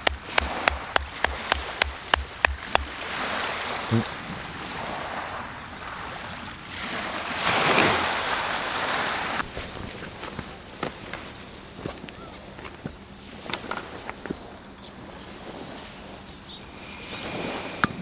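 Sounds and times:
hammer tapping on paper packet: 0:00.0 - 0:02.9
wind: 0:00.0 - 0:18.0.

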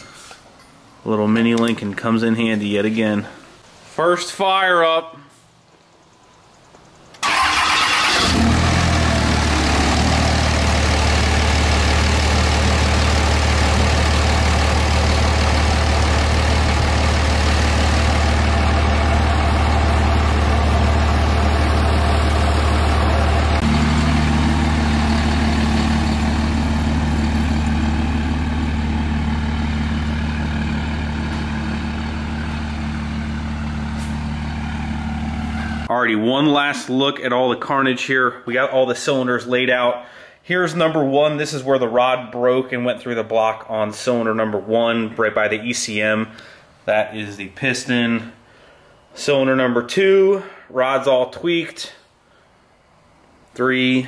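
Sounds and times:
truck engine starting and idling: 0:07.0 - 0:35.9.

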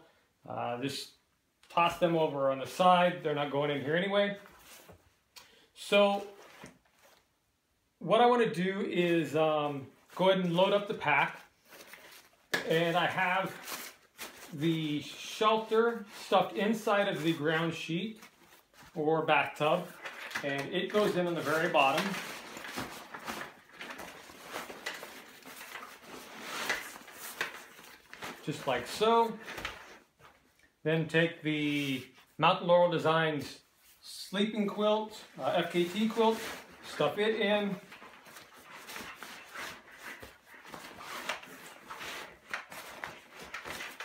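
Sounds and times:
nylon backpack fabric rustling: 0:10.4 - 0:30.3, 0:34.9 - 0:44.0.

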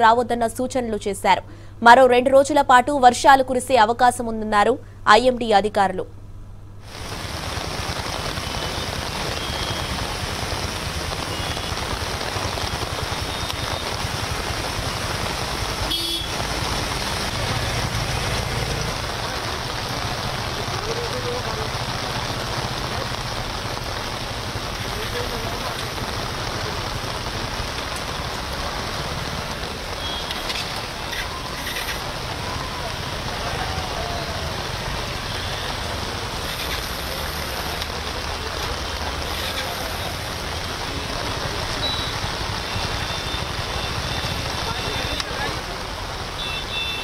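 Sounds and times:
heavy rain: 0:06.8 - 0:47.0
road traffic on wet street: 0:06.8 - 0:47.0
car horn toots: 0:15.9 - 0:16.4, 0:46.4 - 0:47.0.

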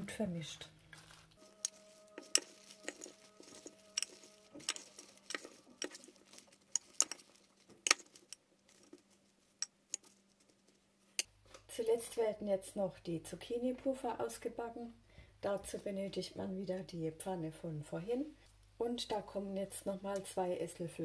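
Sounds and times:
lettuce leaves rustling: 0:00.0 - 0:11.0
metal utensils clinking on glass: 0:01.5 - 0:08.0.

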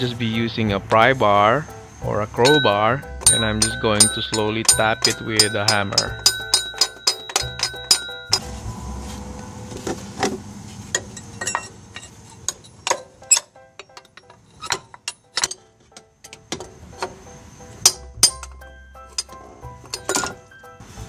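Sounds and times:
hammer tapping steel pry bar: 0:02.4 - 0:08.4.

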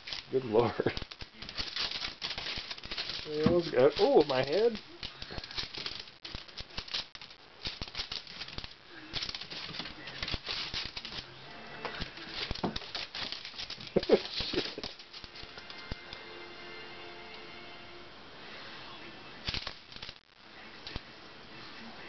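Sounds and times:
dog claws clicking on wooden floor: 0:00.0 - 0:11.3, 0:11.9 - 0:16.0.

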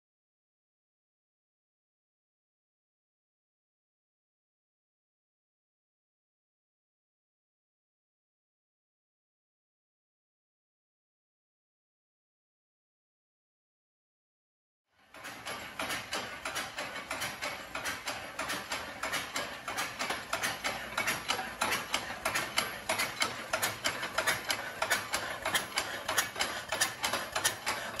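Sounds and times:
mechanical clatter: 0:15.0 - 0:28.0
steam engine exhaust puffs: 0:15.2 - 0:28.0.

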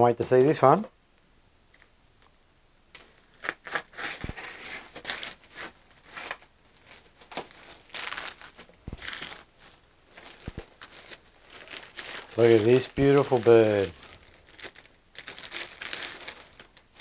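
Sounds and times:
scissors cutting plastic bag: 0:03.0 - 0:09.5, 0:10.2 - 0:17.0
plastic bag crinkling: 0:03.0 - 0:17.0.

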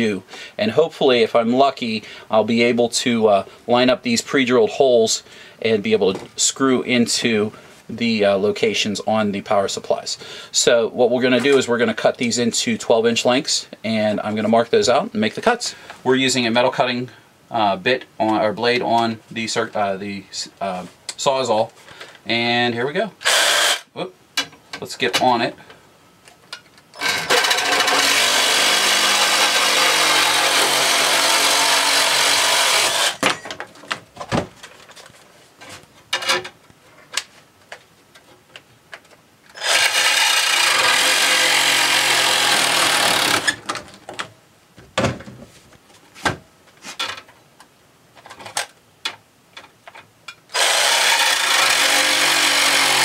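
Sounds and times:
reciprocating saw cutting metal: 0:23.2 - 0:23.8, 0:27.0 - 0:33.2, 0:39.5 - 0:43.6, 0:50.5 - 0:53.0.

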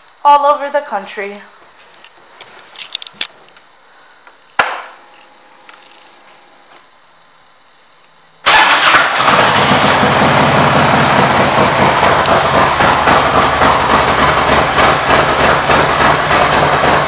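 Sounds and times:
motorcycle engine idling: 0:08.5 - 0:17.0.

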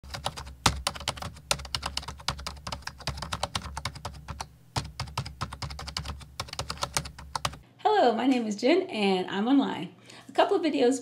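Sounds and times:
keyboard typing: 0:00.1 - 0:07.6.

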